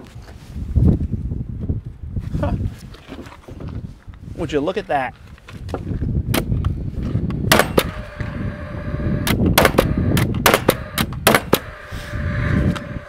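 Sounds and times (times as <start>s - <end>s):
nail gun firing: 7.5s - 8.4s, 9.2s - 11.8s.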